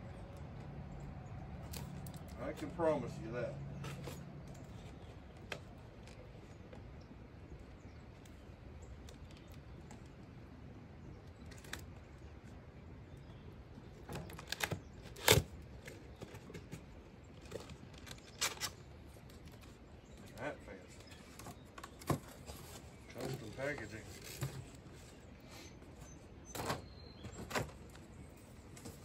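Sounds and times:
light clicks taps and scrapes: 0:01.6 - 0:07.1.

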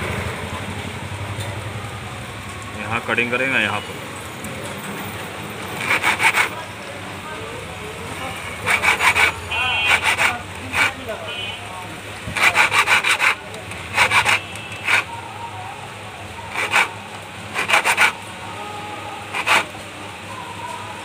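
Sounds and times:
hand file rasping on metal: 0:05.8 - 0:06.6, 0:08.6 - 0:11.1, 0:12.3 - 0:15.1, 0:16.5 - 0:18.2, 0:19.3 - 0:19.7.

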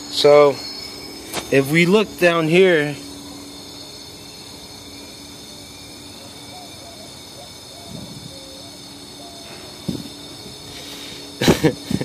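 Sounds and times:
compressed air hissing: 0:07.2 - 0:12.0.

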